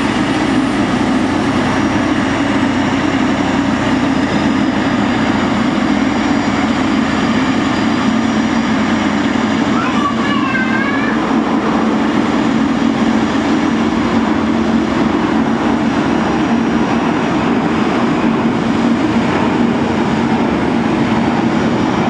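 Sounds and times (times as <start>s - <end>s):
jet engines droning: 0.0s - 22.0s.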